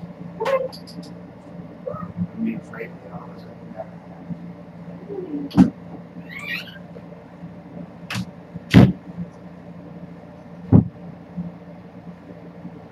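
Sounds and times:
steady low hum: 0:00.0 - 0:12.9.

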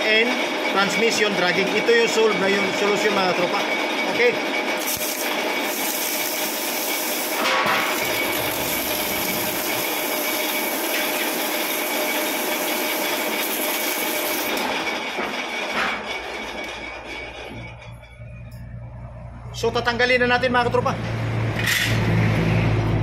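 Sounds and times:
lathe motor hum: 0:00.0 - 0:15.6
sandpaper scraping spinning metal: 0:04.7 - 0:14.9.

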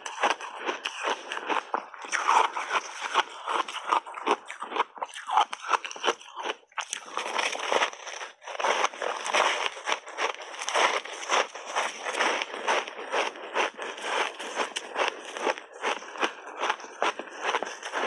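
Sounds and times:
ice chunks crunching in mouth: 0:00.0 - 0:18.0.

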